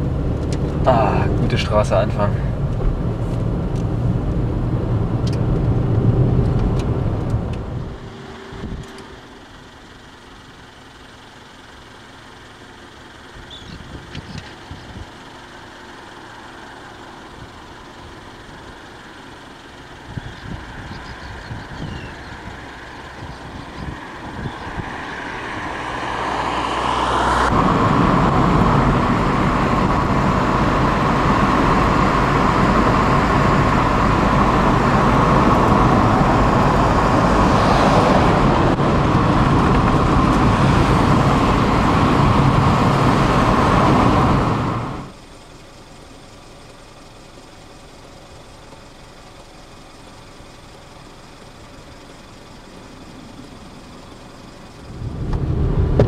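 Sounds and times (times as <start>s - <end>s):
car driving: 0.0s - 56.0s
road noise inside car: 0.0s - 56.0s
wind noise: 2.6s - 9.0s, 13.6s - 15.2s, 20.0s - 26.2s, 27.5s - 45.1s, 54.8s - 56.0s.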